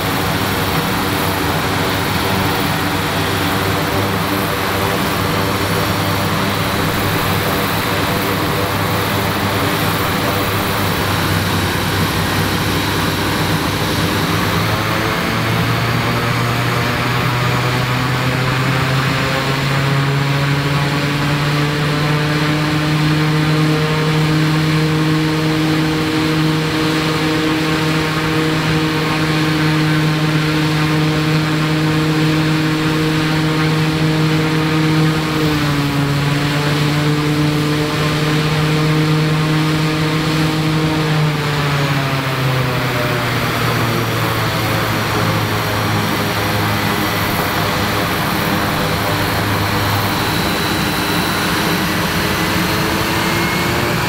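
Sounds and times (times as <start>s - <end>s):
turboprop engine propeller hum: 0.0s - 54.0s.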